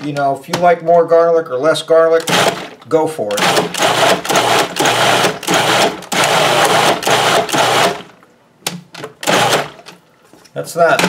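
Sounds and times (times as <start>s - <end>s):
food processor motor pulsing: 2.2s - 2.7s, 3.3s - 8.2s, 9.2s - 9.8s.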